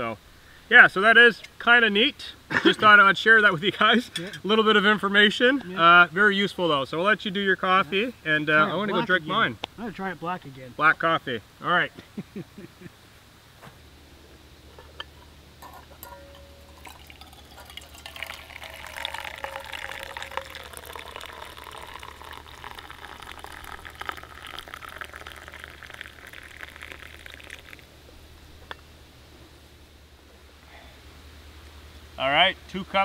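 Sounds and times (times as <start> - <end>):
coffee pouring into metal mug: 15.9 - 27.9.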